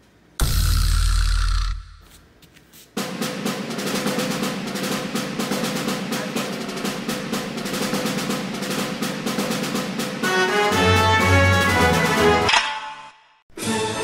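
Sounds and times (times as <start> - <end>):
snare drum roll: 3.0 - 12.5.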